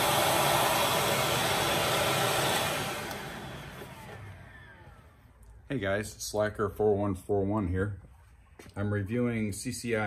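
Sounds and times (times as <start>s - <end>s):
motor winding down whine: 0.0s - 5.4s
shop vacuum running: 0.0s - 5.4s.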